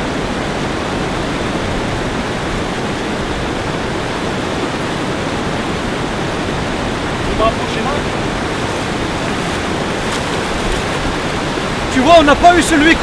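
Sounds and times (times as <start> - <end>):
water rushing over a weir: 0.0 - 13.0.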